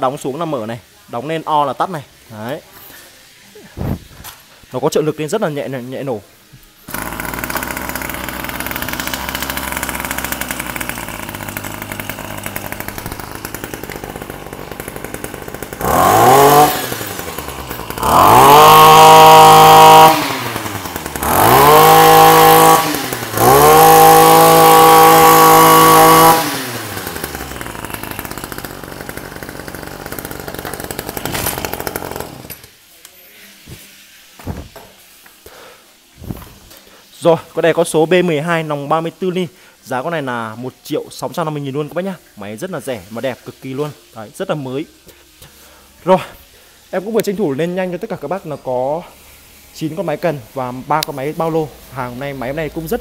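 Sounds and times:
brush cutter engine revving: 6.9s - 32.7s.

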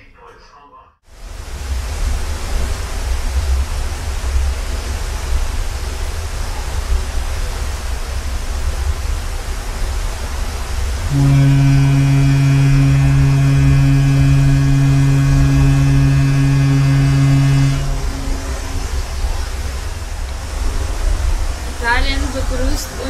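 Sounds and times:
heavy low rumble: 1.2s - 23.0s
ship foghorn: 11.0s - 20.8s.

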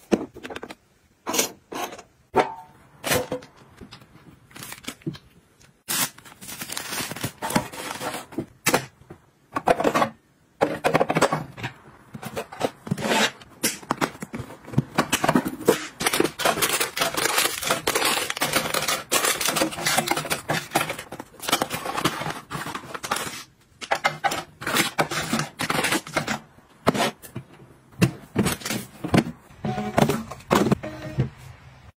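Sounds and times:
plastic packets crinkling: 4.4s - 8.4s, 13.8s - 26.4s
items clicking onto shelves: 7.3s - 31.3s.

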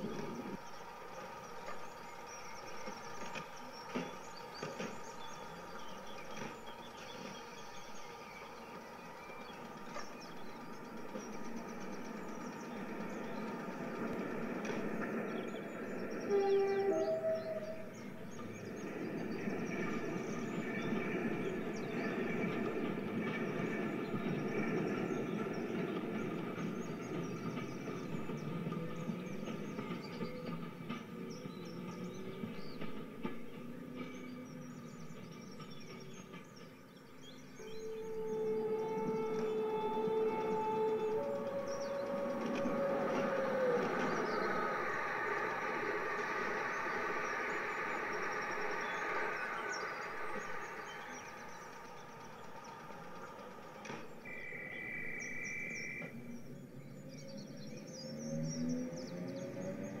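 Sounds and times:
birds chirping: 0.0s - 60.0s
rail clicks: 0.0s - 60.0s
train rumbling on rails: 0.0s - 60.0s
high whistle-like tone: 54.3s - 56.1s.

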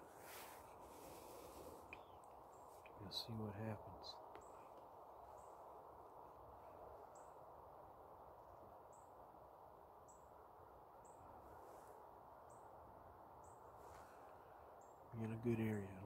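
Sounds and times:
faint steady hiss: 0.0s - 16.0s
small bird chirping: 0.3s - 5.6s.

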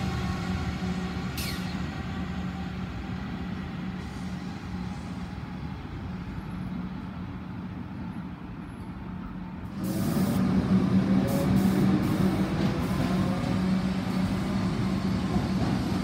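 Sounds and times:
electric train humming: 0.0s - 16.0s
air brake hisses: 1.3s - 1.9s, 4.0s - 5.2s.

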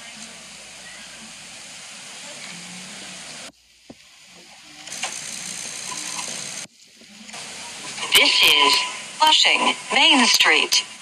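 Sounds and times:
mechanical running noise with hiss: 0.0s - 6.7s.

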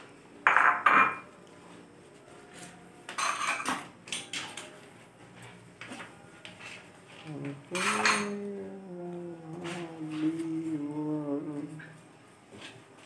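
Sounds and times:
metal pots and dishes clattering: 0.5s - 1.3s, 3.1s - 4.6s, 7.7s - 8.5s.

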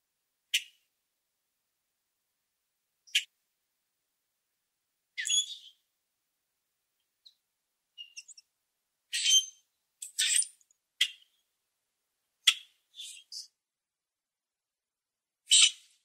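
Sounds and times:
bird squeaky chirps: 5.2s - 5.8s, 8.0s - 8.4s, 9.1s - 11.2s, 12.5s - 13.5s, 15.5s - 15.9s.

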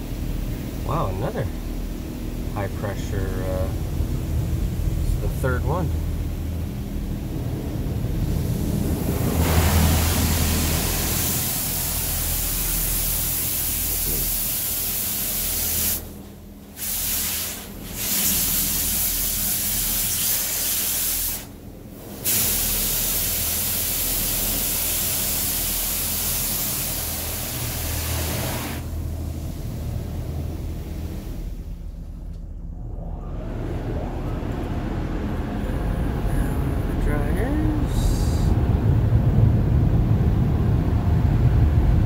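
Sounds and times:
steady low hum: 0.0s - 42.0s
water jets spraying car: 7.4s - 31.5s.

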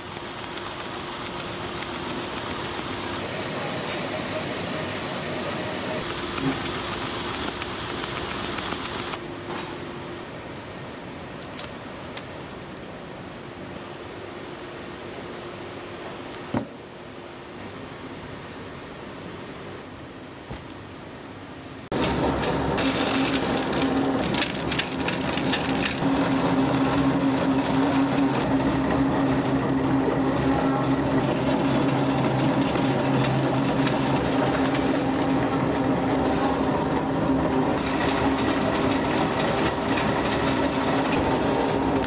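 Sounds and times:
machinery humming with rapid ticking: 0.0s - 9.2s, 21.9s - 42.0s.

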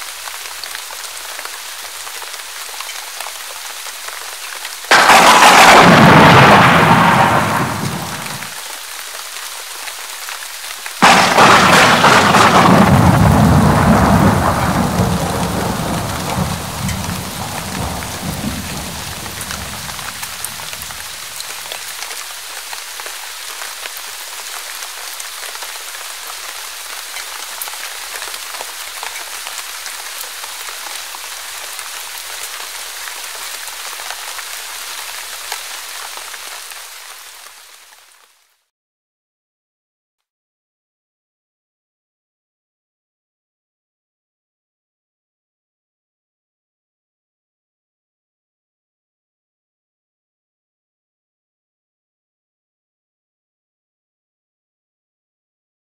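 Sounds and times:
steady rain: 0.0s - 38.7s
thunder crashing: 4.9s - 8.6s, 11.0s - 21.3s.

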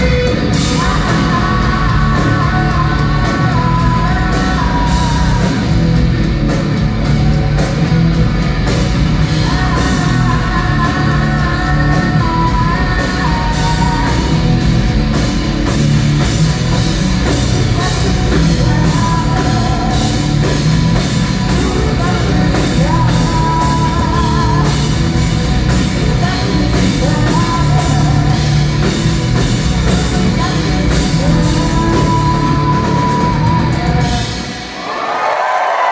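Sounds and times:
woman singing and yelling: 0.0s - 5.6s, 9.4s - 14.3s
rock band playing loud: 0.0s - 35.9s.

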